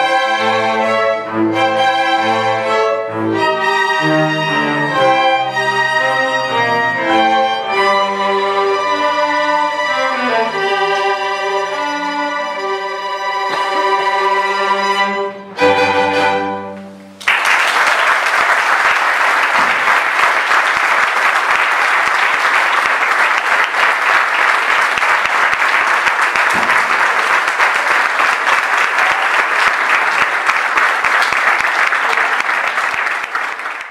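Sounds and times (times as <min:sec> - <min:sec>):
string orchestra chords: 0:00.0 - 0:17.2.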